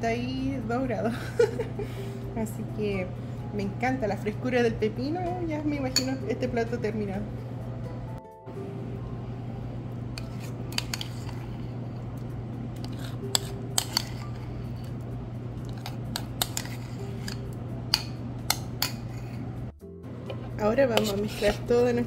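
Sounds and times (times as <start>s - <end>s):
low hum: 5.0s - 22.0s
utensil scraping ceramic bowls: 10.1s - 12.1s, 12.8s - 15.0s, 15.6s - 19.7s, 20.3s - 22.0s.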